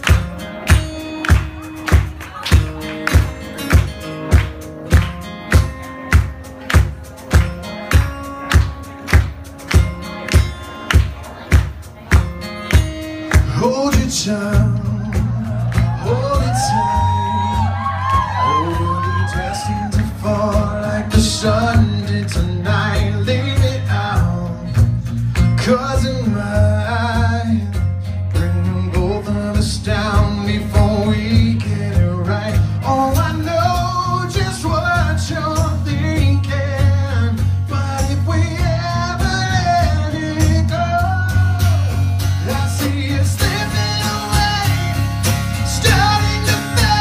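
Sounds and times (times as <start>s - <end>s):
bass line: 0.0s - 47.0s
strummed acoustic guitars: 0.0s - 47.0s
man singing: 13.1s - 47.0s.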